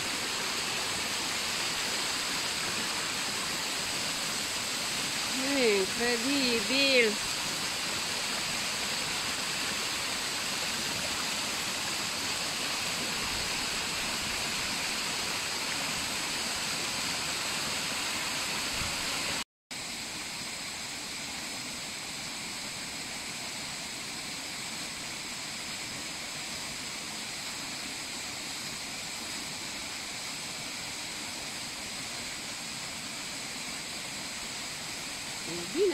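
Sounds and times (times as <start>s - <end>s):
waterfall rushing: 0.0s - 19.4s.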